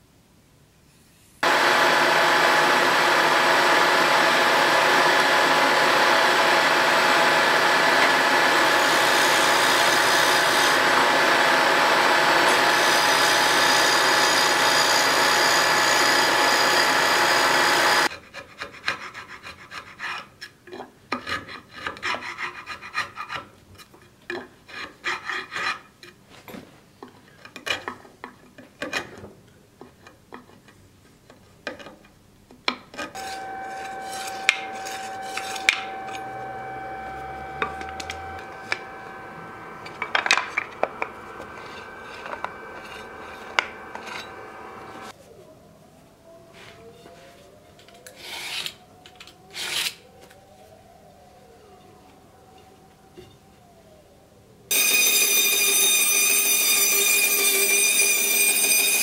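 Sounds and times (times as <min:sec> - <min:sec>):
milling machine cutting wood: 0:01.4 - 0:18.1, 0:33.2 - 0:45.1
steady machine hum: 0:01.4 - 0:18.1, 0:33.2 - 0:45.1
metal blade scraping wood: 0:33.1 - 0:39.1, 0:39.8 - 0:45.1.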